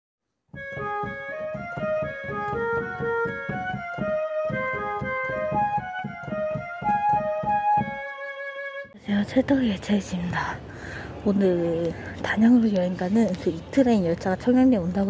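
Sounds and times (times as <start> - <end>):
keyboard melody over a beat: 0.5 - 9.0.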